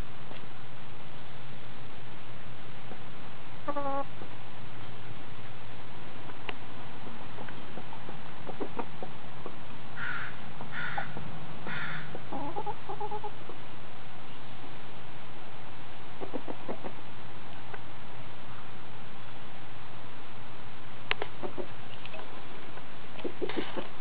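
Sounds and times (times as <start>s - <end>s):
hens clucking: 3.6s - 4.3s, 7.3s - 13.6s, 16.2s - 17.0s, 21.2s - 22.3s, 23.2s - 24.0s
hen squawks: 3.7s - 4.1s, 10.0s - 13.4s.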